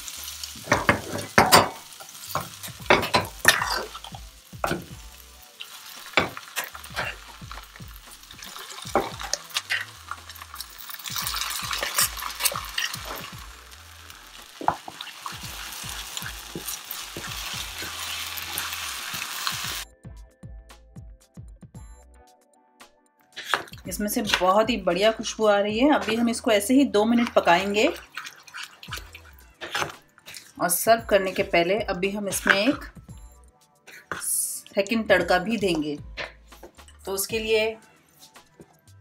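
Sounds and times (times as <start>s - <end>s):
food sizzling: 0.0s - 19.8s, 23.4s - 32.9s.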